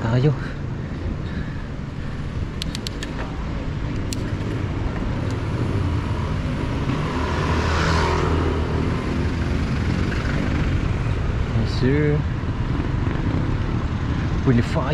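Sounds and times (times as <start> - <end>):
street traffic rumble: 0.0 - 14.9
light clicks: 2.5 - 3.4.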